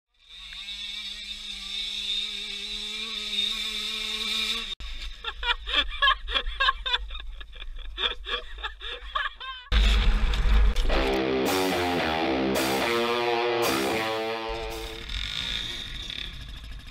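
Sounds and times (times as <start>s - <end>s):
dirt bike engine running: 0.1s - 5.0s, 9.7s - 16.9s
person laughing: 5.0s - 10.1s
loud guitar music: 9.8s - 15.0s.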